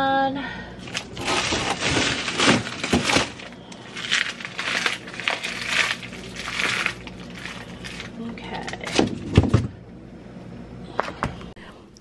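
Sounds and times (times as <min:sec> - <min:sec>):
plastic bags crinkling: 0:00.8 - 0:09.6.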